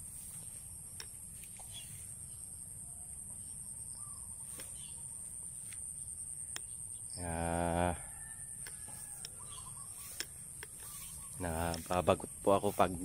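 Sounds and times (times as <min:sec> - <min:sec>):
high-pitched insect drone: 0:05.2 - 0:13.0
man's voice: 0:07.2 - 0:08.0, 0:11.4 - 0:13.0
faint ticks: 0:08.5 - 0:12.0.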